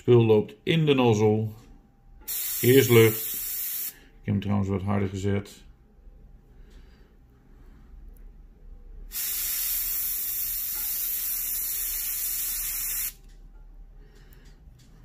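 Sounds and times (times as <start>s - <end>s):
airbrush air hiss: 2.3s - 4.0s, 9.1s - 13.2s.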